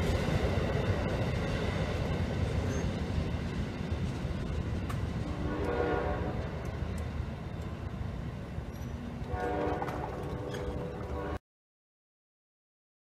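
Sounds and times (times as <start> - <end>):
train rumbling past: 0.0 - 11.4
locomotive air horn blasts: 5.3 - 6.4, 9.2 - 11.4.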